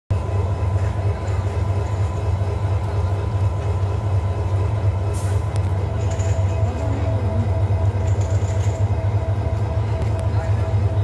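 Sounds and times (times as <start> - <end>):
locomotive engine idling: 0.1 - 11.0.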